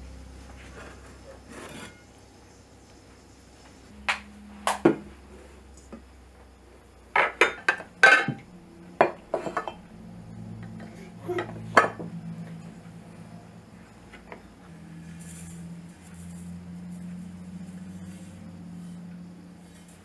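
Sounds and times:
kitchenware clinking: 0:07.2 - 0:09.8.

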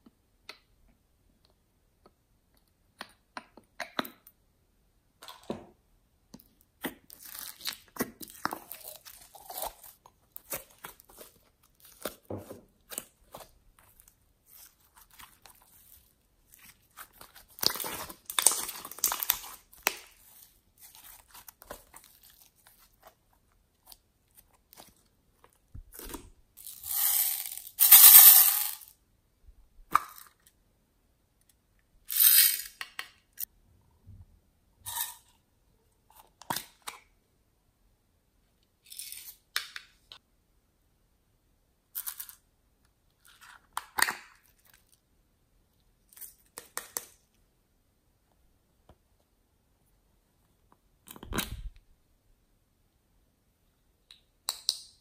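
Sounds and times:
plastic containers crackling: 0:07.2 - 0:23.1.

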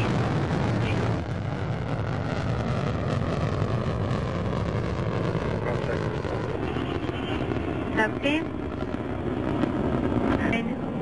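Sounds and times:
rocket engines rumbling: 0:00.0 - 0:11.0.

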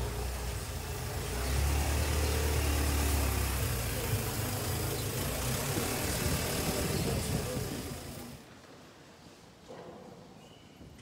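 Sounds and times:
car engine idling: 0:00.0 - 0:08.4.

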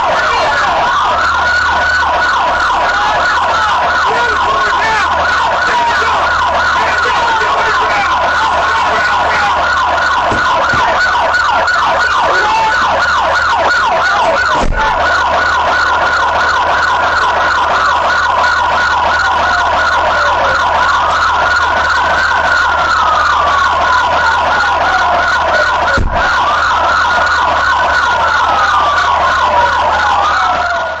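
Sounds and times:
siren wail: 0:00.0 - 0:31.0
siren yelp: 0:00.0 - 0:31.0.

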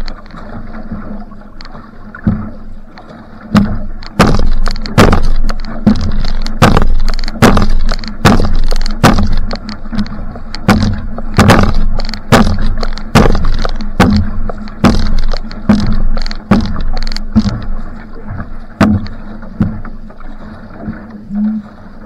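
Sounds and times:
paddle splashing into water: 0:00.0 - 0:22.0.

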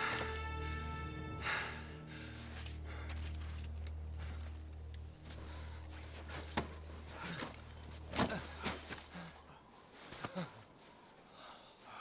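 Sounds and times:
bodies thudding in snow: 0:05.2 - 0:09.4.

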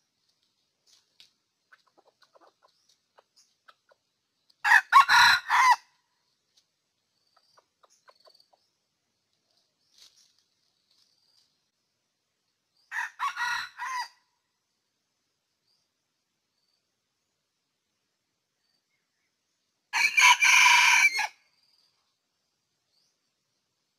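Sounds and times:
rooster crowing: 0:04.6 - 0:05.9, 0:12.9 - 0:14.2, 0:19.9 - 0:21.4.

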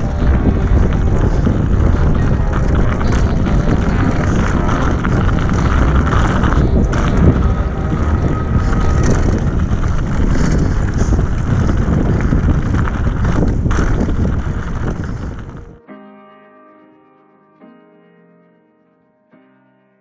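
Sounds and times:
bike rattling: 0:00.0 - 0:15.8
bike tyres on dirt: 0:00.0 - 0:15.8
wind rushing on microphone: 0:00.0 - 0:15.8.

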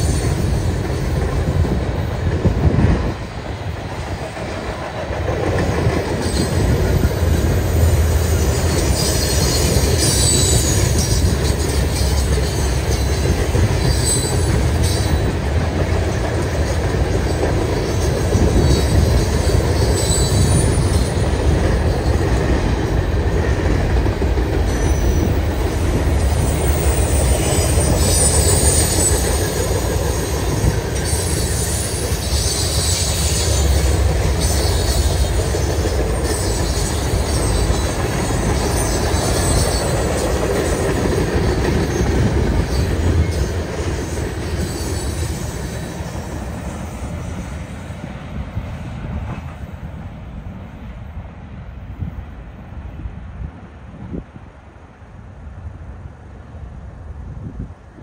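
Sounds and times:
freight train wheels rumbling: 0:00.0 - 0:58.0
high wheel squeals: 0:06.2 - 0:15.5, 0:16.5 - 0:22.4, 0:24.6 - 0:47.7.

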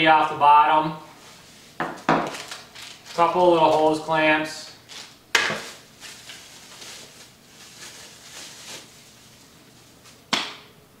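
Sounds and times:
plastic bag crinkling: 0:02.1 - 0:04.0, 0:04.8 - 0:10.2.

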